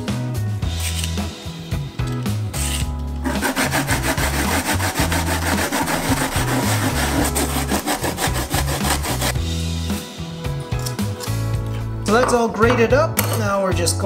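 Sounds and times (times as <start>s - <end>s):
background music: 0.0s - 14.0s
radish scraping on grater: 3.3s - 9.4s.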